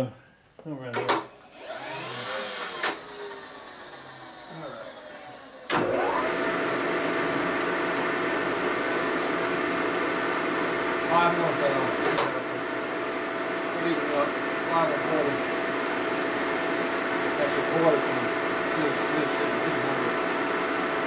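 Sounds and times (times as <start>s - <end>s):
motor whirring: 1.4s - 7.8s
spindle motor hum with whine: 1.5s - 21.0s.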